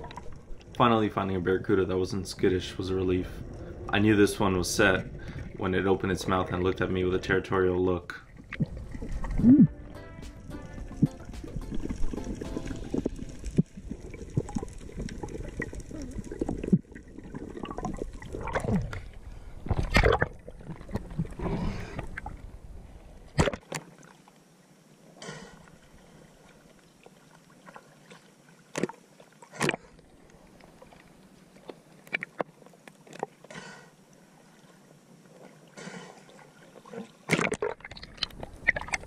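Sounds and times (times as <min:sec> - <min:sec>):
underwater rumble of moving water: 0:00.0 - 0:09.9, 0:10.6 - 0:23.4
water gurgling: 0:00.0 - 0:32.4.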